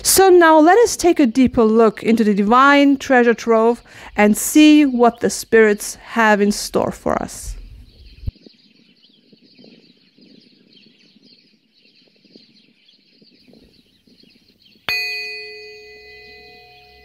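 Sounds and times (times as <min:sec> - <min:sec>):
singing bowl ringing: 0:14.9 - 0:17.0.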